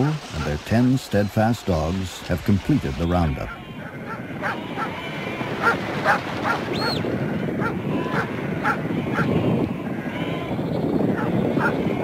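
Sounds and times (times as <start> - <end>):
dogs barking: 0.0 - 0.5, 3.5 - 5.0, 5.6 - 7.0, 7.6 - 9.4, 11.1 - 11.8
flock of sheep din: 3.0 - 6.3, 7.2 - 12.0.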